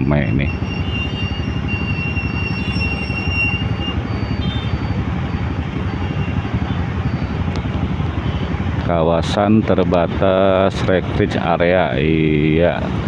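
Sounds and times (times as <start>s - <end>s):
faint high whine: 0.0s - 8.4s
motorcycles idling and passing: 0.0s - 13.0s
street traffic rumble: 0.0s - 13.0s.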